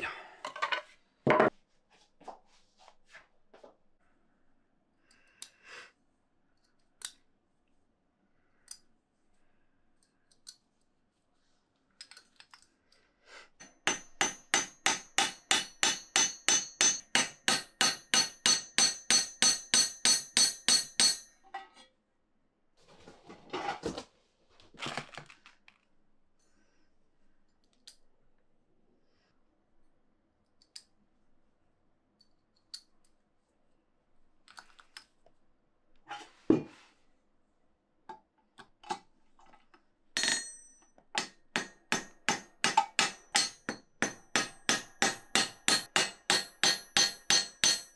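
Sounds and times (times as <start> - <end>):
hammer striking punch on metal: 13.8 - 21.3, 41.2 - 47.9.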